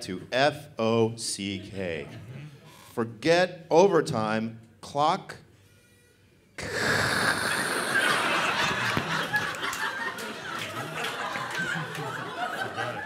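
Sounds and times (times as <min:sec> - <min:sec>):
audience laughing: 0:07.1 - 0:13.0.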